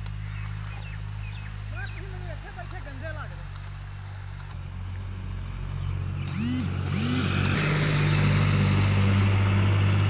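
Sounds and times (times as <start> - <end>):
engine running: 0.0 - 10.0
rising and falling tones: 6.2 - 10.0.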